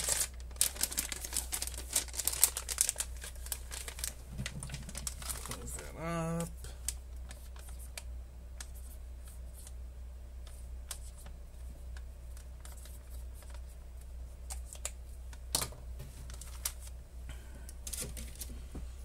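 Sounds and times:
plastic bag crinkling: 0.0 - 6.0, 16.3 - 16.9
low steady hum: 0.0 - 19.0.

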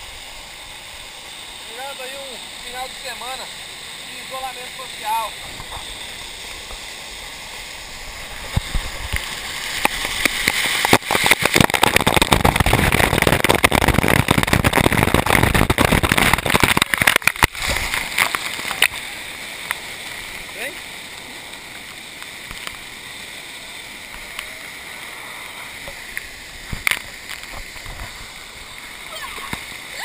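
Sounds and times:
waterfall rushing: 0.0 - 30.0
water splashing onto microphone: 7.8 - 30.0.

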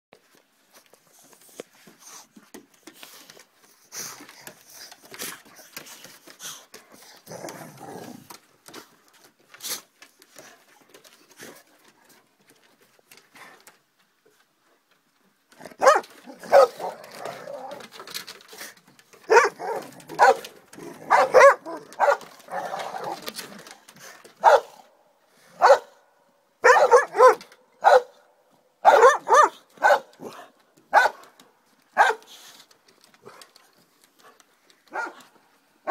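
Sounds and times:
scuffling and clicks: 0.2 - 24.9, 28.9 - 35.9
dog barking: 15.8 - 16.9, 19.3 - 20.5, 21.1 - 22.6, 24.4 - 24.9, 25.6 - 26.0, 26.6 - 28.2, 28.8 - 31.2, 32.0 - 32.3, 34.9 - 35.2.

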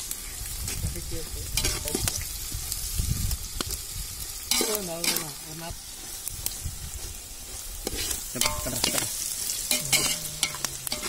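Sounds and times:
vegetables frying in oil: 0.0 - 11.0
ladle stirring in pot: 7.8 - 11.0.

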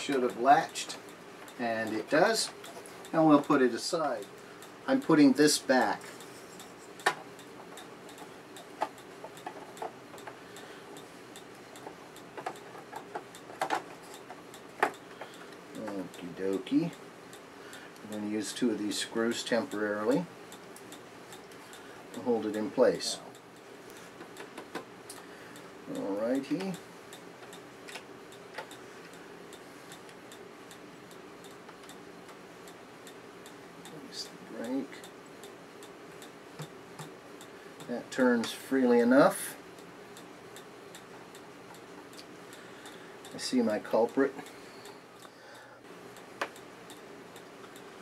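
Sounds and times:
faint steady ticking: 0.0 - 48.0
small sharp clicks: 23.3 - 34.0.

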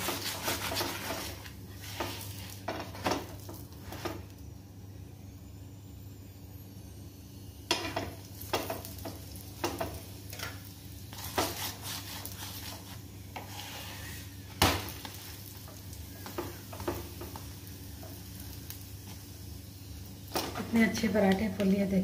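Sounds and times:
spatula scraping a pan: 0.0 - 4.2, 9.6 - 14.4
oil sizzling: 0.0 - 4.6, 7.3 - 22.0.

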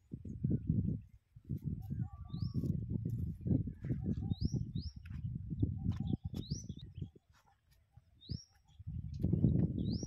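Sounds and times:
bird chirping: 3.4 - 10.0.

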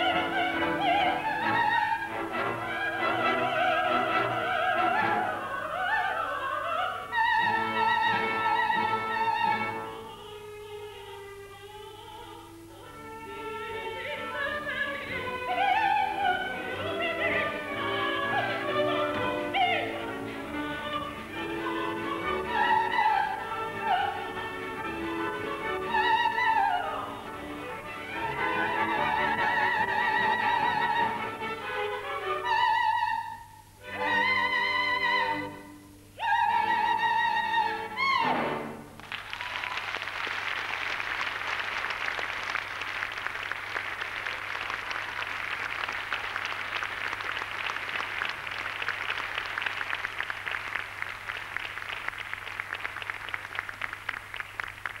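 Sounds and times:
operetta singers with orchestra: 0.0 - 39.0
audience applauding: 39.0 - 55.0.

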